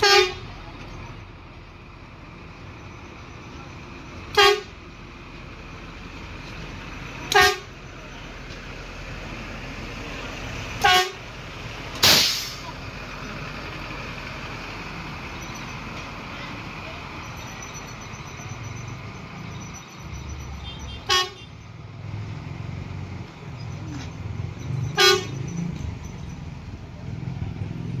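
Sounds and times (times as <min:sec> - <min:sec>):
vehicle horn toots: 0:00.0 - 0:00.5, 0:04.3 - 0:04.8, 0:07.3 - 0:07.7, 0:10.8 - 0:11.2, 0:20.6 - 0:21.6, 0:24.9 - 0:25.6
engine rumble: 0:00.0 - 0:28.0
brief hissing burst: 0:12.0 - 0:12.7.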